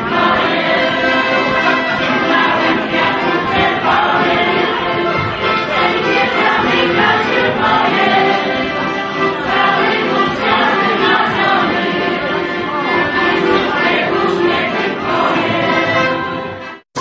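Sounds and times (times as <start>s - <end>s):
group of voices singing: 0.0s - 16.8s
accordion dance music: 0.0s - 17.0s.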